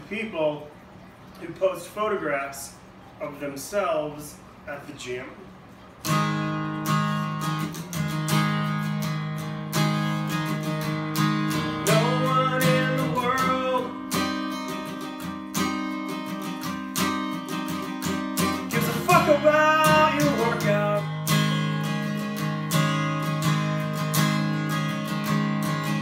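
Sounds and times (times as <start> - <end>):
acoustic guitar strumming: 5.8 - 26.0
man singing: 11.7 - 14.0, 18.6 - 21.2.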